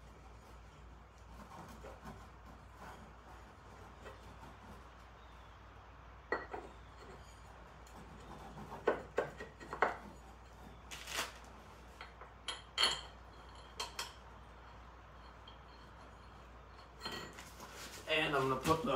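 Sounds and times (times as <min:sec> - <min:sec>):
metal tools clinking: 0:12.0 - 0:17.6.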